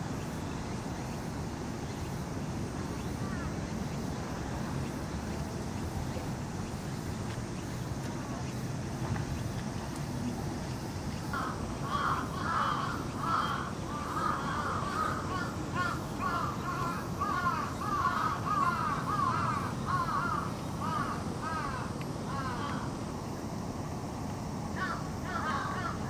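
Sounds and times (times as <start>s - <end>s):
bird calling: 3.0s - 3.5s, 9.3s - 22.9s.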